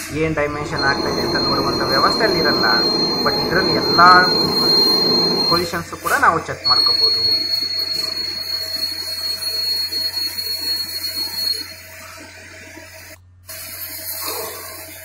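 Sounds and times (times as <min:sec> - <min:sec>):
lathe cutting metal: 0:00.0 - 0:05.7.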